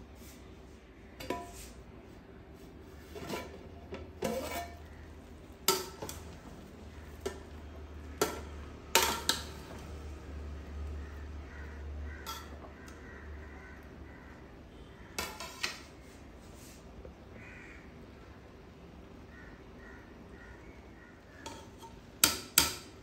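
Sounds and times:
metal spoon clinking in a pot: 0:05.6 - 0:06.4, 0:08.2 - 0:09.7, 0:12.2 - 0:12.6.

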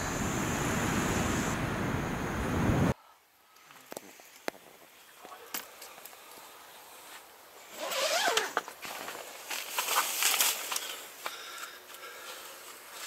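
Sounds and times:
tent zipper being pulled: 0:07.7 - 0:09.0
nylon fabric rustling: 0:07.7 - 0:10.9.

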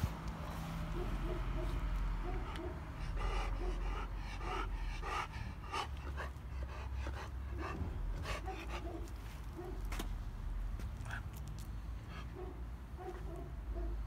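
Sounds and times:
dog panting: 0:01.0 - 0:09.8.

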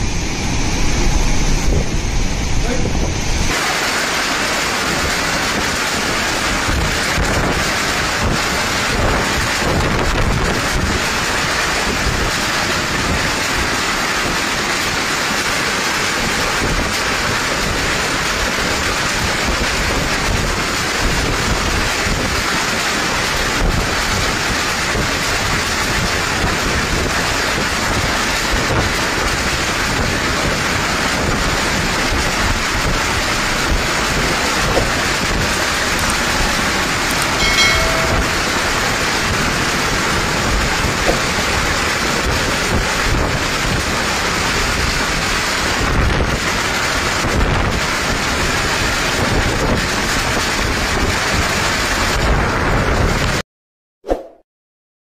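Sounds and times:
wind buffeting microphone: 0:00.0 - 0:03.6, 0:04.7 - 0:15.0, 0:15.6 - 0:53.4
heavy rain: 0:00.0 - 0:53.4
strong gusting wind: 0:00.0 - 0:53.4
brief pitched tone: 0:37.2 - 0:39.1.

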